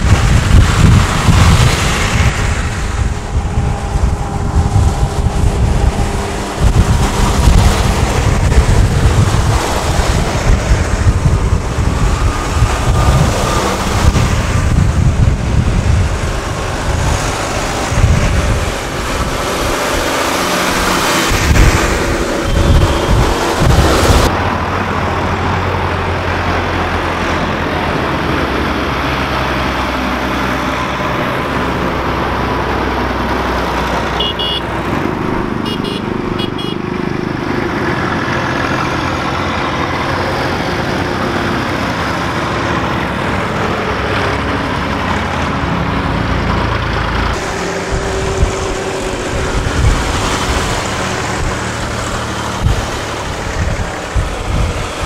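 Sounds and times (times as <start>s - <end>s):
tractor engines passing: 0.0s - 55.0s
moped passing: 26.9s - 55.0s
short horn toots: 34.2s - 34.7s, 35.6s - 36.8s.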